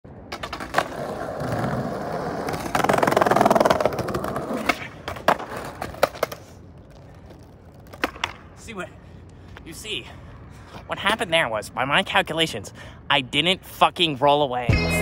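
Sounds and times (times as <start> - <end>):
skateboard wheels rolling on asphalt: 0.1 - 12.5
skateboard clacking on ground: 0.3 - 8.6.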